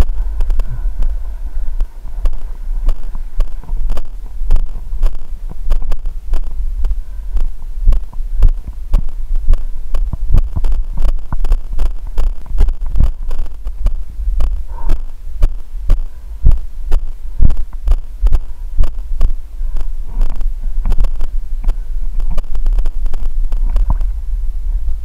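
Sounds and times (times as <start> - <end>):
wind on microphone: 0.0 - 25.0.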